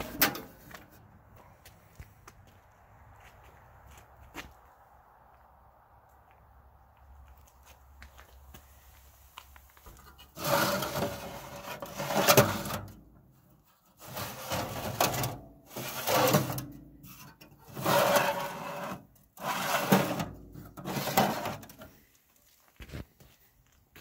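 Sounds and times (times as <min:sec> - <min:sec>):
steel drawers sliding: 0:00.0 - 0:00.6, 0:10.4 - 0:13.0, 0:14.0 - 0:16.7, 0:17.6 - 0:21.8.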